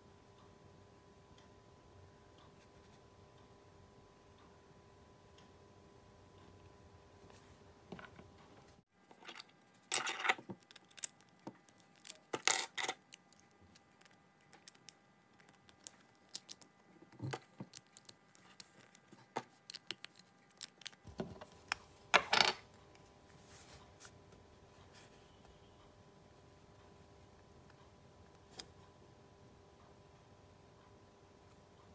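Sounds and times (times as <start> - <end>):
toy parts clattering: 9.1 - 21.0
toy parts clicking and clinking: 9.1 - 21.0.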